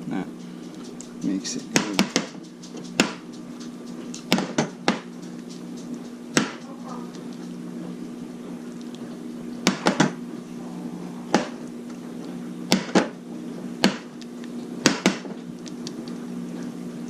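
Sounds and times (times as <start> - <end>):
low appliance hum: 0.0 - 17.0.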